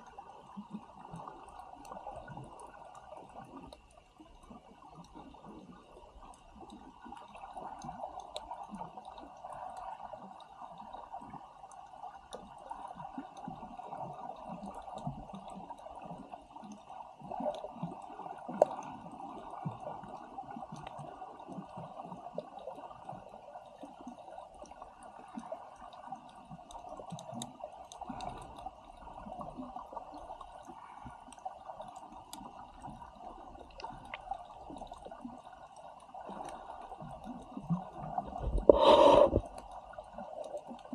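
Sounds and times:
muffled underwater rush: 28.0s - 40.9s.

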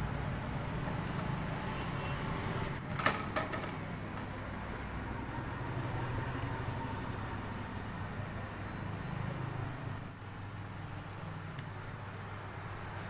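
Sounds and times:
plastic pipe and wires clicking: 0.6s - 1.4s.

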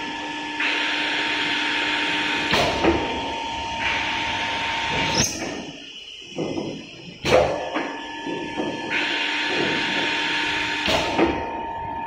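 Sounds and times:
drilling machine motor whine: 7.8s - 12.0s.

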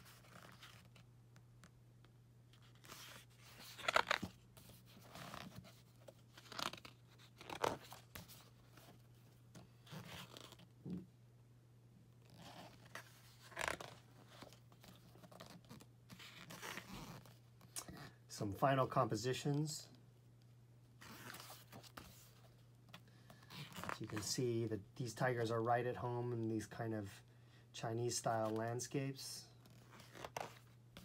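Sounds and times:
book pages rustling: 0.0s - 1.7s, 2.5s - 10.7s, 12.2s - 18.0s, 21.0s - 24.3s, 29.6s - 31.0s.

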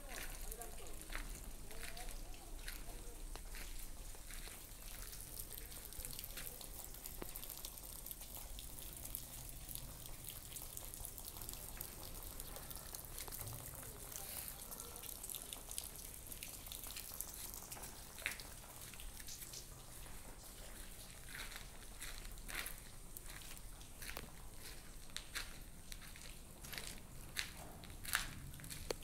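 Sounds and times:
light ticks and crackles: 0.0s - 29.0s.

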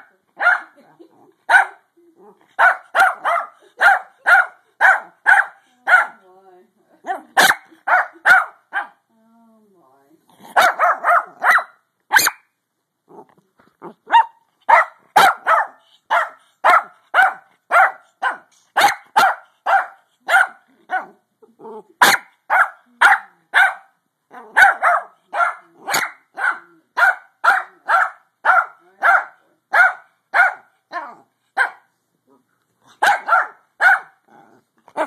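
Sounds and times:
small dog barking: 0.4s - 0.8s, 1.5s - 1.8s, 2.6s - 6.2s, 7.0s - 9.0s, 10.5s - 12.4s, 14.0s - 21.2s, 22.0s - 31.9s, 33.0s - 34.2s.

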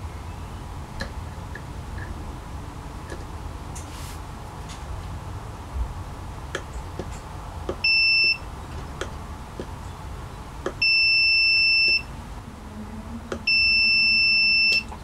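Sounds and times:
probe tips clicking: 6.5s - 9.9s, 10.6s - 11.0s, 11.7s - 12.1s
multimeter beeping: 7.8s - 8.4s, 10.8s - 12.1s, 13.4s - 14.9s.

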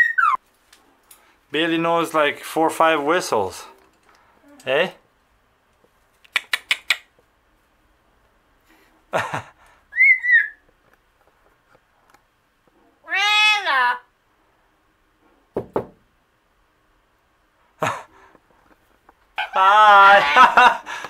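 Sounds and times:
parrot wavering whistle: 0.0s - 0.4s, 9.9s - 10.6s
parrot clicks: 6.2s - 7.1s.

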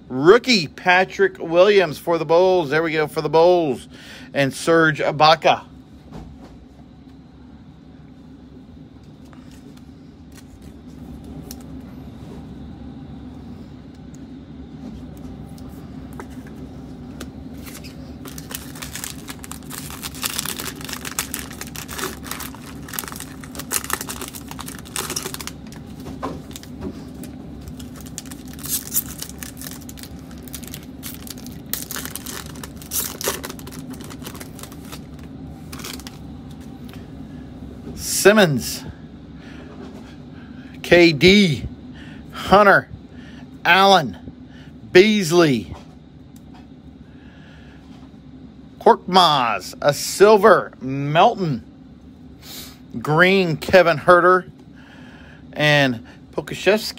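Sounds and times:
steady low hum: 0.0s - 56.9s
foil tearing: 17.6s - 25.8s, 27.7s - 36.2s
foil wrapper rustling and crackling: 17.6s - 36.2s.

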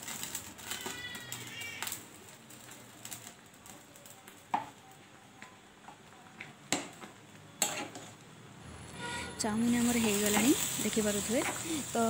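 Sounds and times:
metal spatula stirring in water: 7.6s - 8.1s.

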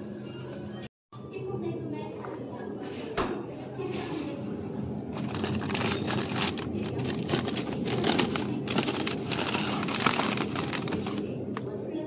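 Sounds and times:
plastic packaging crinkling: 5.2s - 11.7s.

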